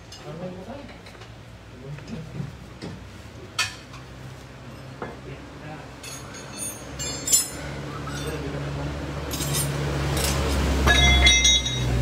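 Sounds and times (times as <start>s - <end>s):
metal tools clinking on car parts: 6.0s - 12.0s.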